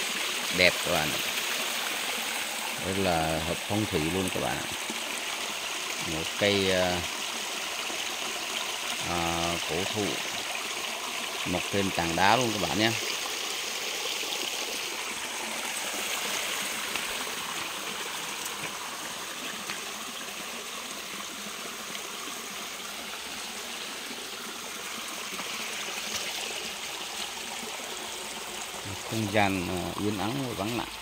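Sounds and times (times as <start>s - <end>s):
creek flowing over stones: 0.0s - 31.0s.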